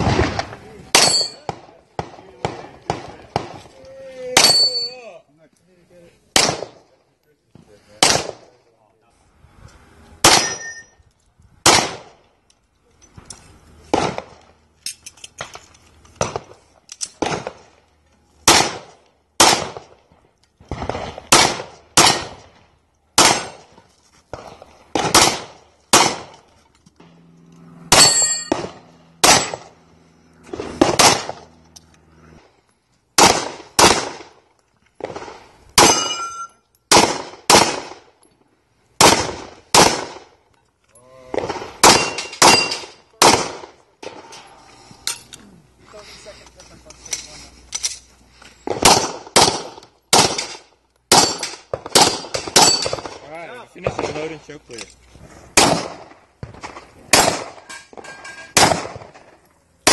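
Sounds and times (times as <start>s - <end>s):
pistol shots: 0.0s - 3.7s, 6.4s - 6.8s, 8.0s - 8.5s, 10.2s - 10.8s, 11.6s - 12.2s, 13.9s - 14.4s, 17.2s - 17.6s, 18.4s - 20.0s, 20.7s - 22.6s, 23.2s - 23.7s, 24.3s - 26.4s, 27.9s - 29.8s, 30.5s - 31.4s, 33.2s - 34.4s, 35.0s - 38.1s, 39.0s - 40.3s, 41.4s - 44.2s, 48.7s - 53.2s, 55.6s - 57.7s, 58.5s - 59.2s
steel plates clanging: 28.0s - 28.6s, 57.6s - 58.6s.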